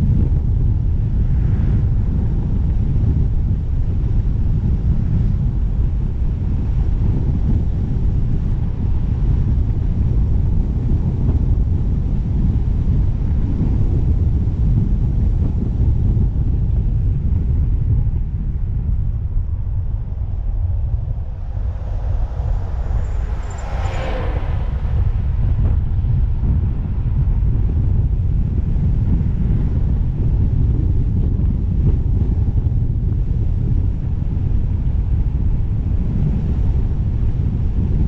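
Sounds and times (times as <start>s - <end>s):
steady low rumble: 0.0s - 38.0s
engine passing by: 20.1s - 27.2s.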